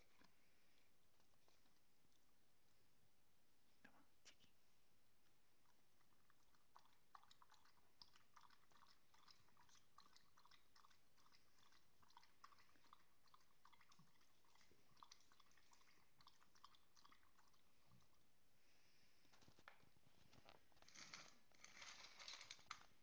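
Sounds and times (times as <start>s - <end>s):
dog chewing with wet clicks: 5.6s - 18.2s.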